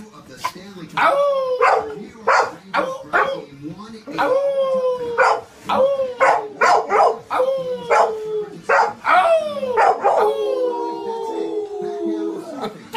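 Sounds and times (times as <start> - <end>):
dogs howling: 1.0 - 3.5, 4.1 - 12.8
dogs barking: 1.0 - 3.6, 5.1 - 10.7.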